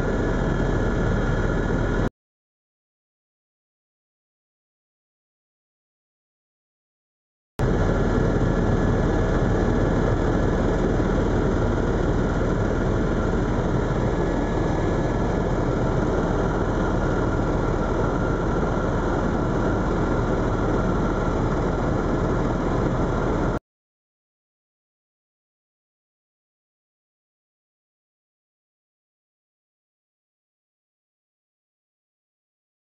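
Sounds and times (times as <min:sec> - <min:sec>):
helicopter cabin drone: 0:00.0 - 0:02.1, 0:07.6 - 0:23.6.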